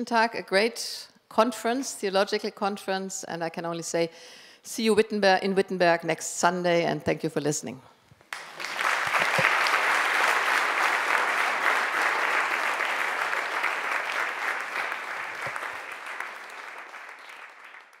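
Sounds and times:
audience applauding: 0:08.3 - 0:18.0.

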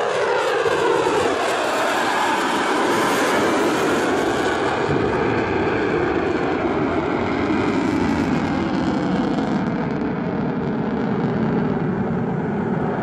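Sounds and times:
fighter jet engine roar: 0:00.0 - 0:13.0.

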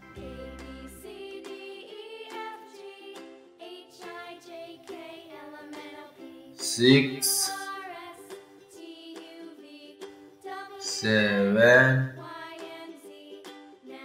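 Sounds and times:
children's music with plucked notes: 0:00.0 - 0:14.0
person speaking: 0:06.6 - 0:07.7, 0:10.8 - 0:12.2.

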